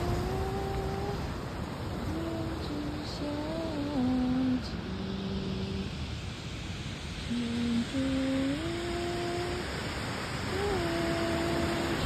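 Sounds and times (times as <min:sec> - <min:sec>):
person humming a melody: 0:00.0 - 0:01.3, 0:02.0 - 0:05.9, 0:07.3 - 0:09.7, 0:10.4 - 0:12.0
steady hiss: 0:00.0 - 0:12.0.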